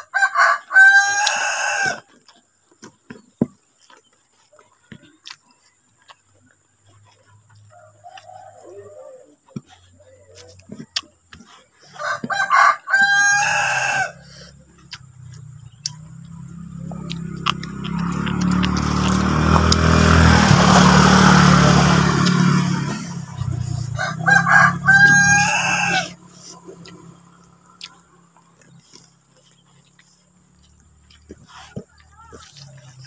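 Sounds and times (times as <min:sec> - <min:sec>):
rooster crowing: 0:00.0 - 0:02.2, 0:07.6 - 0:09.7, 0:11.9 - 0:15.4, 0:16.4 - 0:29.1.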